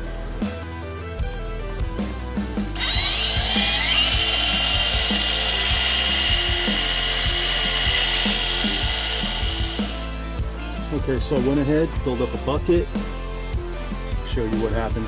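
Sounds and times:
electric motor whining: 2.6s - 10.3s.

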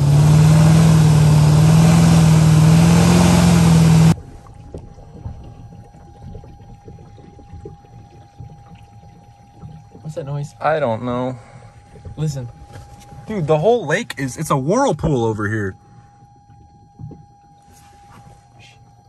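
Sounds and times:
truck engine running hard: 0.0s - 4.2s
water spraying and churning: 0.0s - 13.6s
faint steady high tone: 5.3s - 19.0s.

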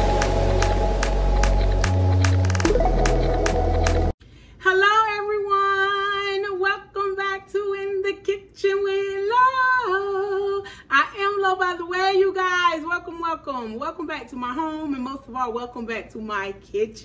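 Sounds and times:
intro music with a beat: 0.0s - 4.2s
woman singing unaccompanied: 4.6s - 12.9s.

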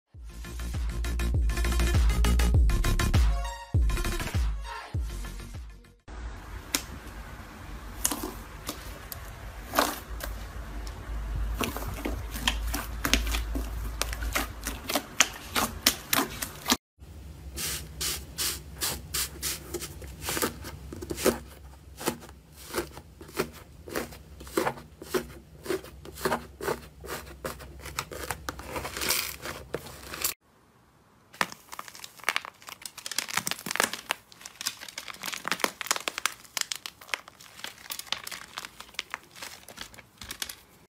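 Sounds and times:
dried slime crust crackling: 7.8s - 16.8s, 19.4s - 30.4s, 31.3s - 40.9s.

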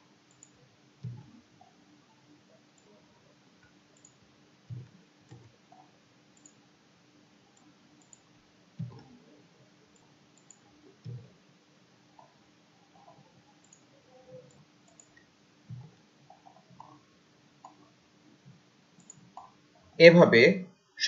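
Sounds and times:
faint room hiss: 0.0s - 21.0s
computer mouse clicks: 0.3s - 1.4s, 3.6s - 6.6s, 7.6s - 8.2s, 8.8s - 9.2s, 10.0s - 11.3s, 12.9s - 17.0s, 19.0s - 19.5s.

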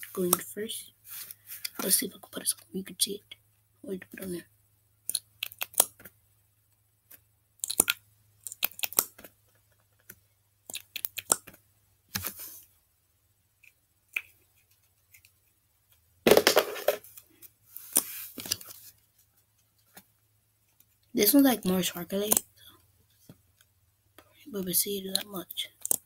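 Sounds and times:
rustling scrape: 1.0s - 1.7s, 17.7s - 19.9s
plastic tools clicking and tapping: 25.1s - 26.0s.

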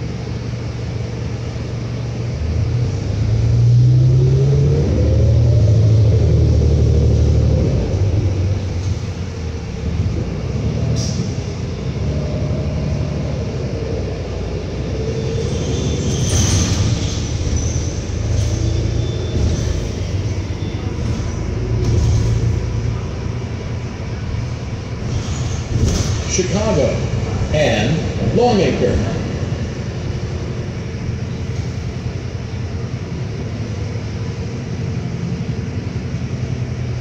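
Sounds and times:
bus engine and road rumble: 0.0s - 37.0s
clatter crossing railroad tracks: 7.6s - 37.0s.

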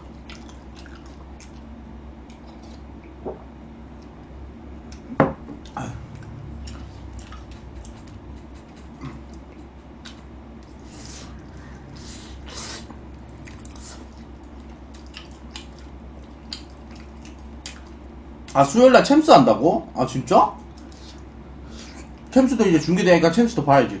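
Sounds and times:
wet chewing and smacking: 0.0s - 3.2s, 4.9s - 18.6s, 20.6s - 22.3s
short slurps: 10.1s - 17.9s.

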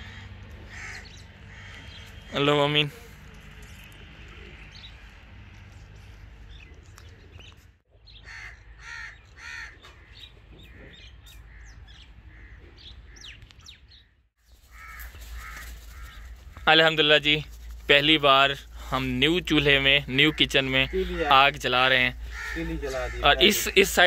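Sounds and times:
crows cawing: 0.0s - 5.2s, 8.2s - 13.4s, 14.6s - 17.6s, 18.6s - 24.0s
small birds chirping: 0.0s - 24.0s.

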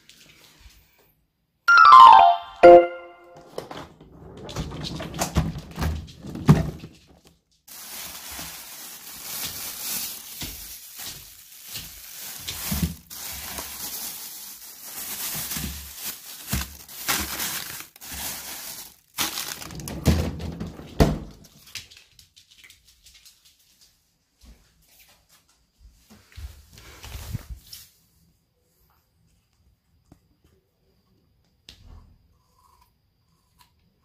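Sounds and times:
plastic bags crinkling: 6.2s - 20.1s.

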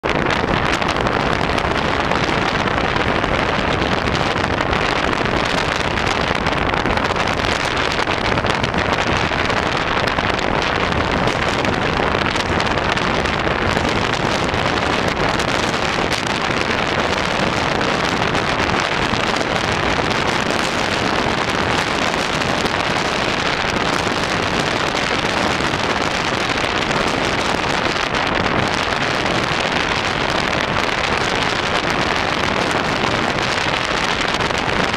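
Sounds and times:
wind buffeting microphone: 0.0s - 34.9s.

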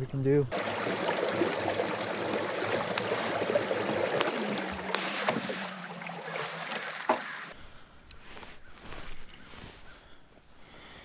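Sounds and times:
water rushing along kayak hull: 0.5s - 7.6s.

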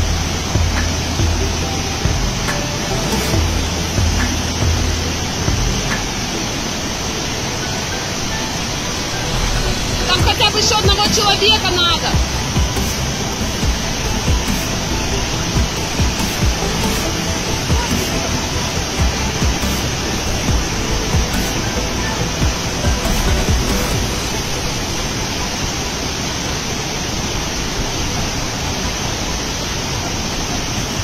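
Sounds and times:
music with deep beat: 0.0s - 6.5s, 12.1s - 24.5s
river rushing: 0.0s - 31.0s.

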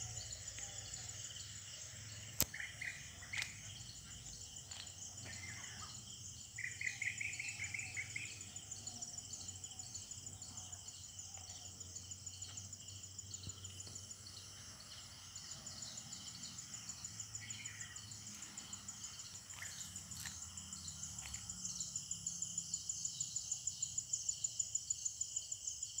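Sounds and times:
insects trilling: 0.0s - 26.0s
bird calls: 0.5s - 11.8s, 13.4s - 21.8s.

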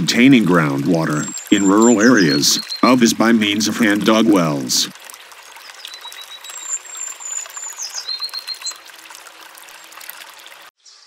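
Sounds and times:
water trickling and splashing: 0.0s - 10.8s.

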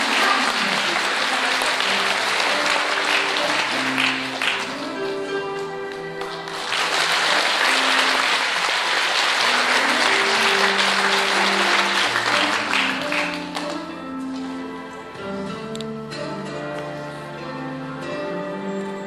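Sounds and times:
audience applauding: 0.0s - 14.0s
slow instrumental music: 0.0s - 19.0s.

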